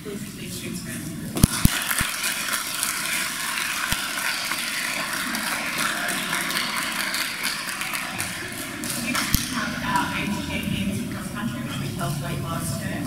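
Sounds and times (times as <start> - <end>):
audience applauding: 1.4 - 10.6.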